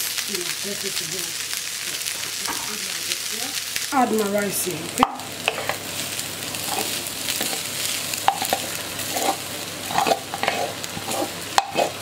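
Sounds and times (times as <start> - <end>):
food sizzling in a wok: 0.0 - 12.0
utensil scraping and knocking pans: 8.2 - 12.0.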